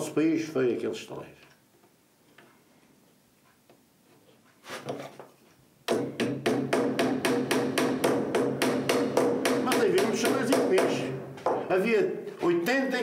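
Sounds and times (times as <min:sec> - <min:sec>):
small hammer tapping pins: 0:05.9 - 0:11.7.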